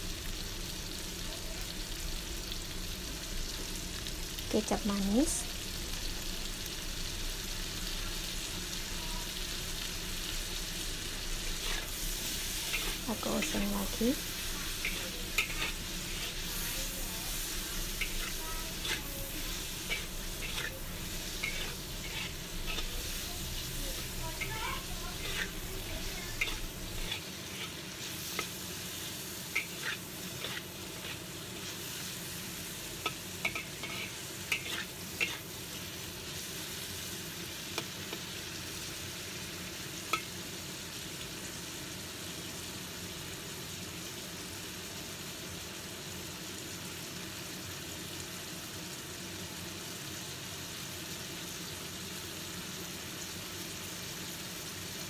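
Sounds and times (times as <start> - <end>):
food sizzling in a hot wok: 0.0 - 55.0
spatula scraping a wok: 9.3 - 38.4.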